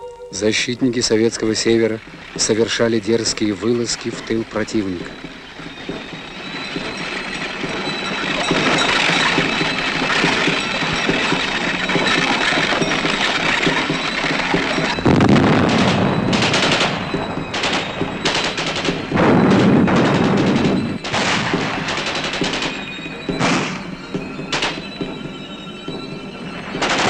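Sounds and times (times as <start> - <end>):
machine-gun and rifle fire: 15.0 - 22.8.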